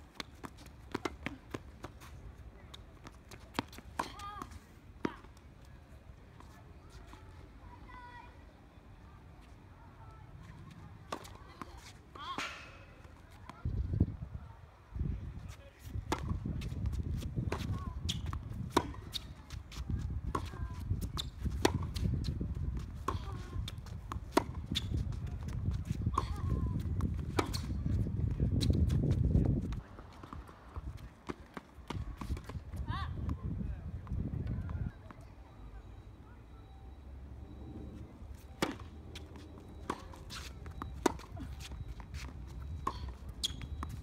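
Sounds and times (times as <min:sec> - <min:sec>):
ball and footstep clicks: 0:00.0 - 0:05.4, 0:38.6 - 0:44.0
racket hitting tennis ball: 0:11.1 - 0:13.0, 0:26.1 - 0:27.8.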